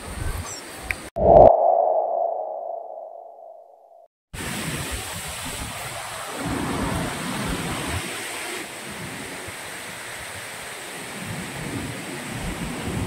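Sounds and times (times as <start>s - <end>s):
wind rumble on microphone: 1.2s - 3.6s.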